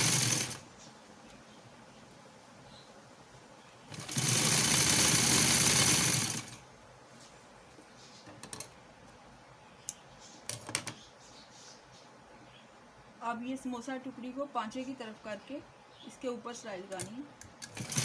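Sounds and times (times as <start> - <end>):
sewing machine stitching: 0.0 - 0.6, 3.9 - 6.6, 17.6 - 18.0.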